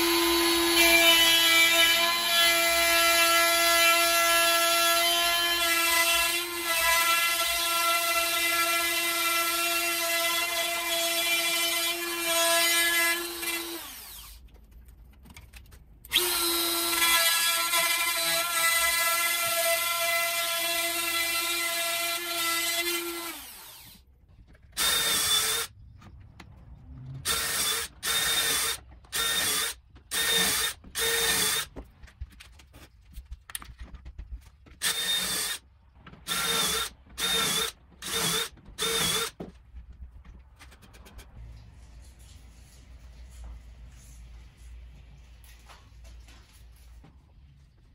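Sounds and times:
cordless drill boring holes: 0:00.0 - 0:14.4, 0:16.1 - 0:24.0, 0:24.8 - 0:25.7, 0:27.2 - 0:31.7, 0:34.8 - 0:35.6, 0:36.2 - 0:39.4.

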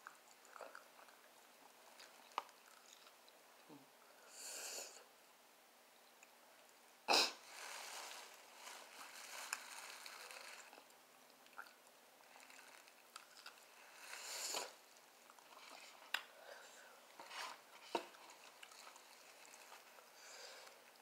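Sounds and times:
chewing with smacks: 0:00.0 - 0:03.7, 0:10.5 - 0:13.7
breathy hissing: 0:04.1 - 0:05.1, 0:13.8 - 0:14.8, 0:20.1 - 0:20.8.

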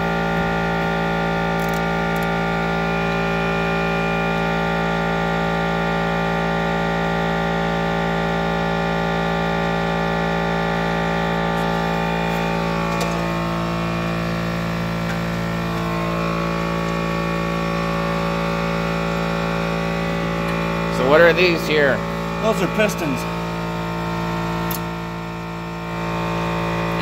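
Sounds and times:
steady machine hum: 0:00.0 - 0:27.0
brake parts clicking and rubbing: 0:11.6 - 0:13.5.

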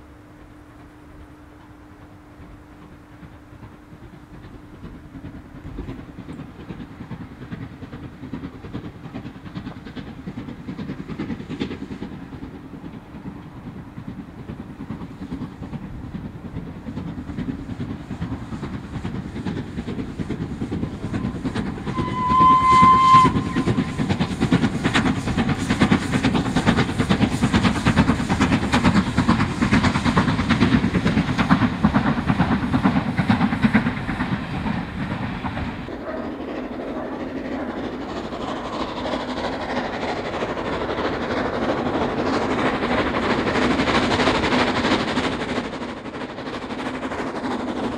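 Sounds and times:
steam train passing: 0:00.0 - 0:47.9
train wheel clicks: 0:01.1 - 0:35.9
steam whistle: 0:21.2 - 0:24.2.

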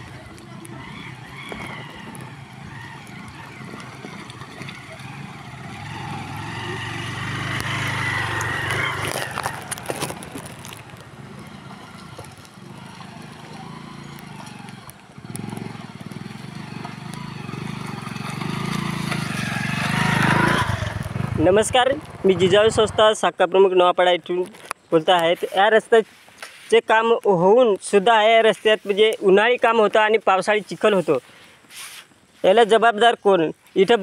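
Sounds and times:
motorcycle engines at low speed: 0:00.0 - 0:23.3.

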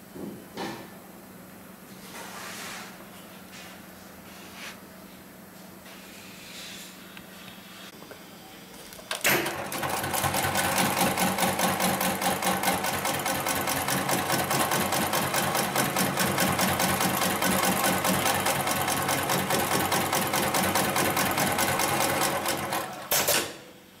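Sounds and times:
sewing machine stitching: 0:09.1 - 0:23.5.

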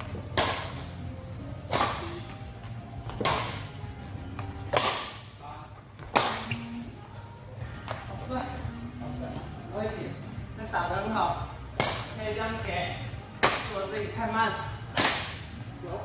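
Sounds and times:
racket striking shuttlecock: 0:00.2 - 0:00.9, 0:01.6 - 0:02.3, 0:03.1 - 0:03.7, 0:04.6 - 0:05.3, 0:06.0 - 0:06.7, 0:11.8 - 0:12.1, 0:13.4 - 0:13.8, 0:14.9 - 0:15.5.

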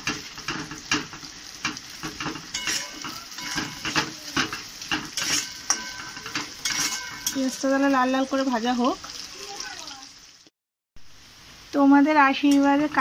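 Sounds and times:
spatula scraping a pan: 0:00.0 - 0:08.3
onion sizzling in oil: 0:00.0 - 0:13.0.

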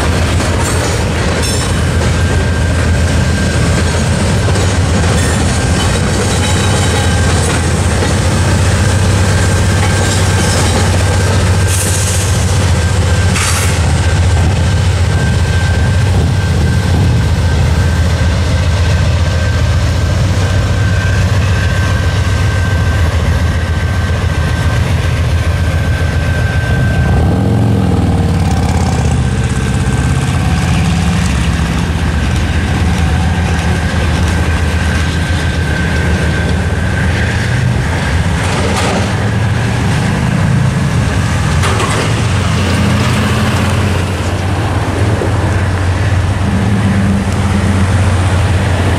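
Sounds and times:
crossing bells ringing: 0:00.0 - 0:25.4
locomotive rumble: 0:00.0 - 0:48.9
cars driving: 0:26.5 - 0:48.9.

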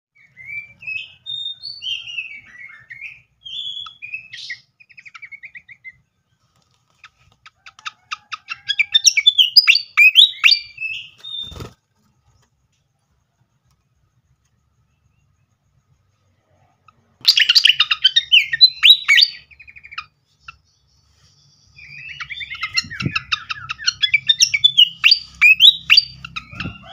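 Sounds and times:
bird song with whistled notes: 0:00.1 - 0:06.3, 0:07.9 - 0:11.8, 0:17.2 - 0:26.9
bird chattering: 0:16.9 - 0:20.7, 0:21.8 - 0:26.9.

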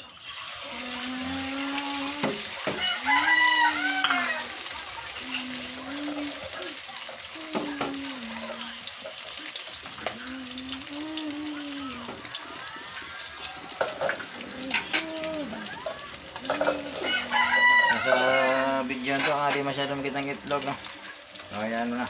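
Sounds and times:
eggs sizzling in hot oil: 0:00.0 - 0:22.0
person humming: 0:00.6 - 0:04.2, 0:05.2 - 0:06.8, 0:07.4 - 0:08.8, 0:10.0 - 0:12.6, 0:14.2 - 0:15.8, 0:16.4 - 0:17.4
utensil clinking: 0:13.6 - 0:17.3.

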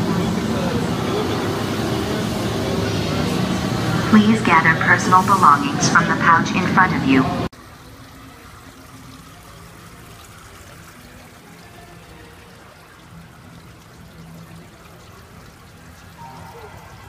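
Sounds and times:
steady rushing noise: 0:00.0 - 0:07.5.

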